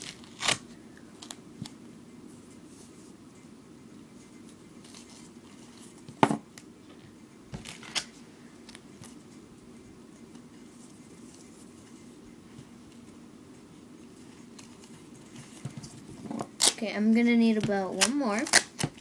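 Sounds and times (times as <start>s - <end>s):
faint duct tape rustling: 0.0s - 1.8s, 4.2s - 6.2s, 14.0s - 19.0s.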